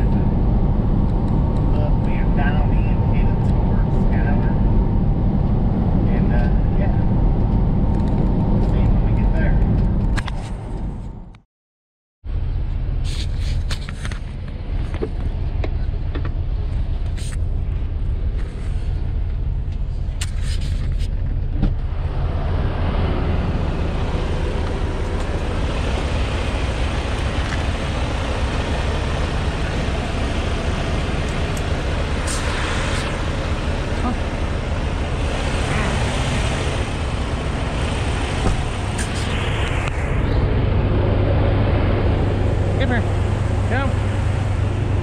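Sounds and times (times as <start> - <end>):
outside noise: 0.0 - 11.4, 12.2 - 45.0
diesel truck engine idling: 21.4 - 45.0.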